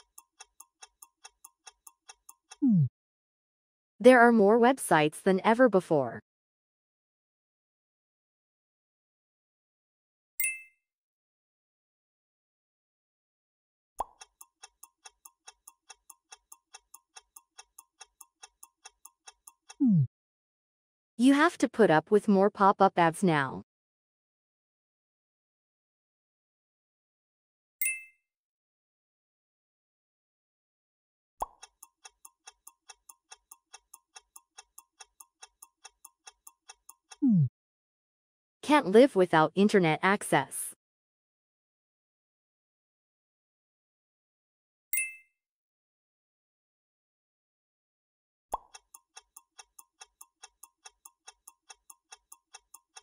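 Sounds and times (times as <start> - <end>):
clock ticking: 0.0 - 2.9, 14.0 - 20.0, 31.4 - 37.3, 38.7 - 40.5, 48.6 - 53.0.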